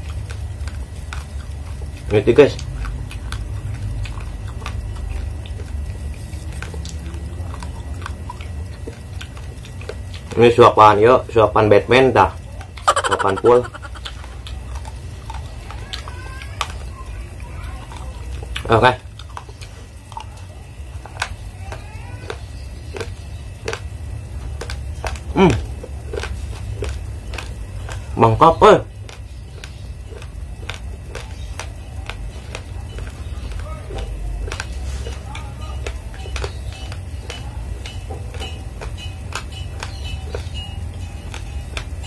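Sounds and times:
rice grains crunching when chewed: 0.0 - 42.0
person humming falling pitch: 12.9 - 14.1.

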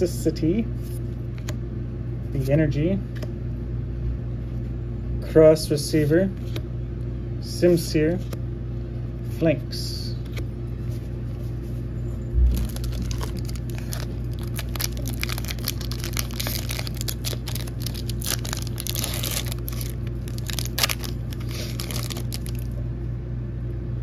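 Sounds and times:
steady low hum: 0.0 - 24.0
foil pack tearing and crinkling: 12.4 - 22.8.

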